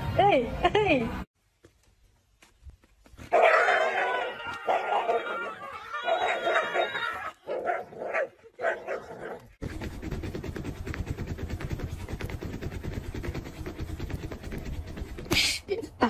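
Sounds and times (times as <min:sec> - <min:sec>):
dog barking and growling: 0:03.3 - 0:09.6.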